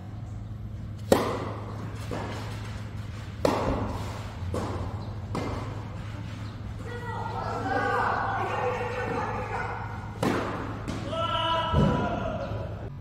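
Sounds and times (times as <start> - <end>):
tennis ball bouncing: 0.9 - 6.7, 10.0 - 11.1
tennis racket hitting ball: 1.0 - 6.5, 10.1 - 12.0.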